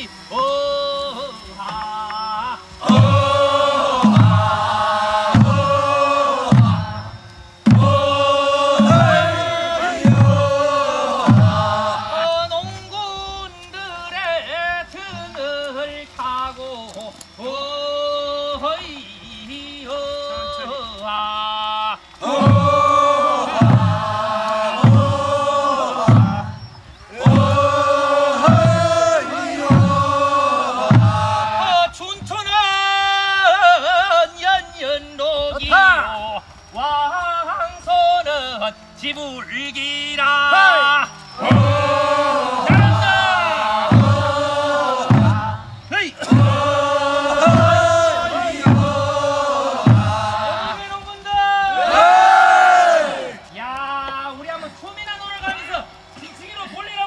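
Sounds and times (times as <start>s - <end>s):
folk melody of held notes: 0.0s - 21.4s, 22.2s - 34.4s, 36.6s - 51.3s
single wavering voice singing: 0.0s - 50.9s
group chanting in unison: 1.7s - 12.8s, 22.2s - 32.4s, 40.6s - 51.0s, 51.6s - 53.5s
low drum strokes: 2.6s - 13.6s, 22.2s - 32.5s, 41.4s - 51.1s.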